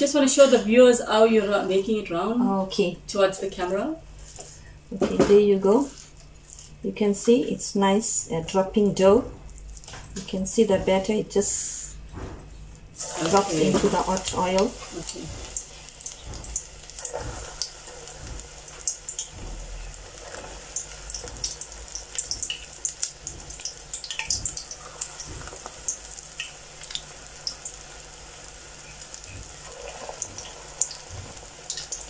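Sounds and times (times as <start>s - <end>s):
batter deep-frying in oil: 12.7s - 32.0s.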